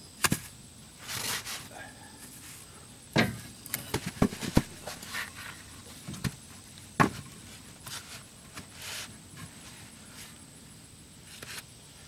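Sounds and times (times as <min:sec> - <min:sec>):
wooden boards knocking: 0:03.2 - 0:05.0.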